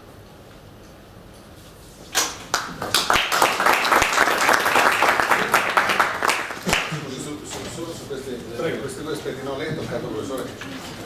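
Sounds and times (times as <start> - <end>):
audience applauding: 2.2 - 7.2.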